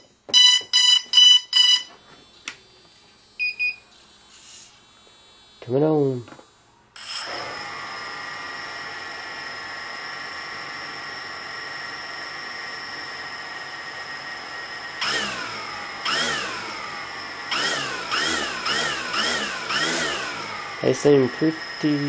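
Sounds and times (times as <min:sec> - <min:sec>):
quadcopter motors whining: 0:13.8 - 0:22.0.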